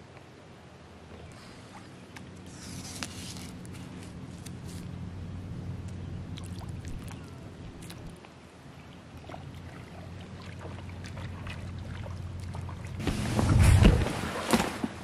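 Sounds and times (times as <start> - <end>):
steady low hum: 0.0 - 14.4
water lapping at a dock: 0.0 - 15.0
small splashes: 5.9 - 15.0.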